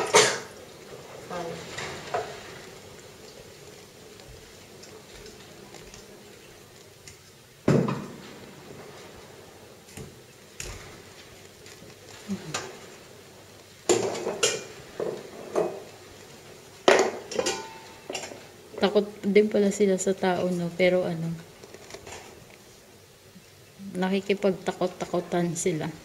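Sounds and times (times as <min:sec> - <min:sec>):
pots and dishes clattering: 0:00.0 - 0:02.8, 0:13.9 - 0:16.0, 0:16.8 - 0:18.9.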